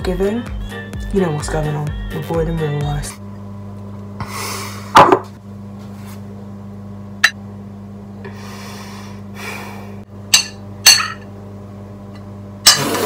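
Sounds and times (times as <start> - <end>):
steady low hum: 0.0 - 13.0
ceramic bowl knocking down: 5.0 - 5.3.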